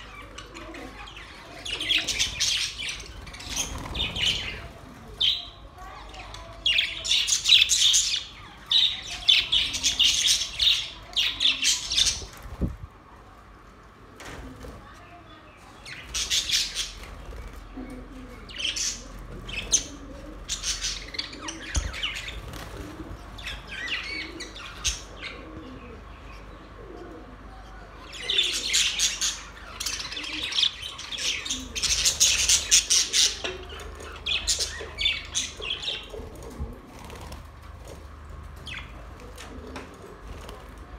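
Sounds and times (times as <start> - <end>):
budgerigars chirping and warbling: 0.0 - 5.6, 18.5 - 25.4, 28.1 - 36.2.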